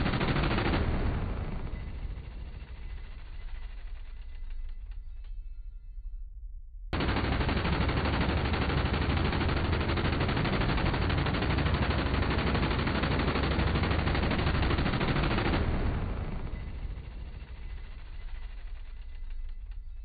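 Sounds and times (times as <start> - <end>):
rotary machine gun firing: 0.0 - 4.9, 6.9 - 20.0.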